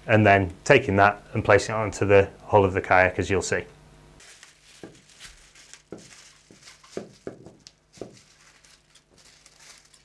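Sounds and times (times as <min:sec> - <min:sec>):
scissors cutting plastic film: 0:04.2 - 0:10.0.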